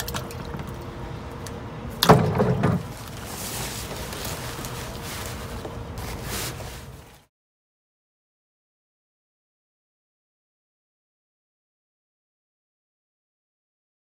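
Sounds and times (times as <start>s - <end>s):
plastic tarp crinkling: 2.2s - 7.3s.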